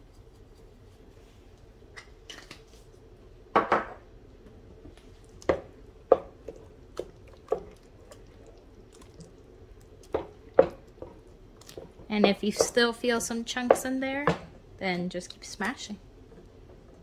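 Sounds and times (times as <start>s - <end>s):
wooden spoon stirring mashed potatoes: 4.8s - 14.5s.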